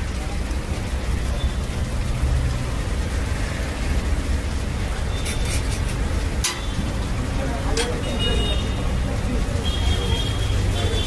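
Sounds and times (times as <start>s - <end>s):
dosas sizzling on griddles: 0.0s - 11.0s
metal spatula clinking on griddle: 7.7s - 8.0s.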